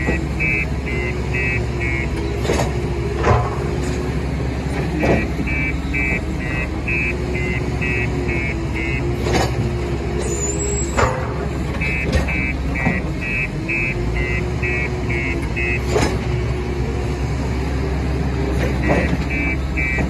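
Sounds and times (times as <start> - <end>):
reversing alarm beeping: 0.0 - 2.6, 5.0 - 9.4, 11.7 - 16.8, 18.8 - 20.0
diesel engine running under load: 0.0 - 20.0.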